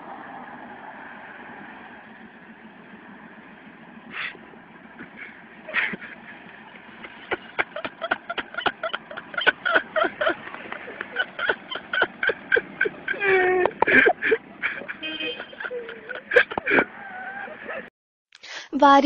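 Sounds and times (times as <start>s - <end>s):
person laughing hard: 5.0s - 17.9s.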